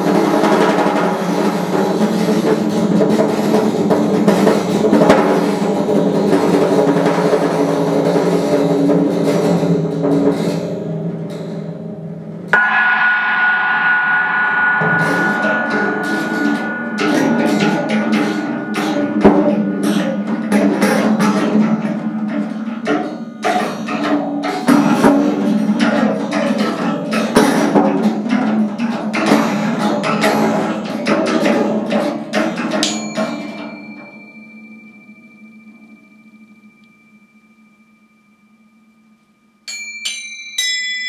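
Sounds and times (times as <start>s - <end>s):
rapid percussion strikes: 0.0s - 36.6s
steady ringing tone: 12.6s - 20.5s, 32.9s - 41.0s.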